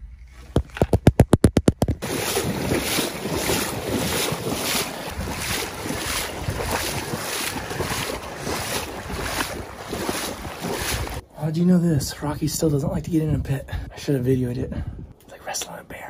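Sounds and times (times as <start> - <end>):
water splashing and sloshing: 1.6 - 11.2
wind on microphone: 1.8 - 11.2, 14.6 - 15.1.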